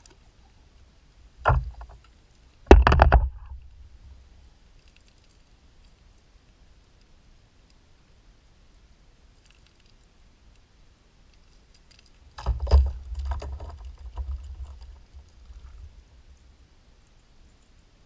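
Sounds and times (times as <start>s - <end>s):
clicks and knocks on microphone: 2.7s - 3.6s.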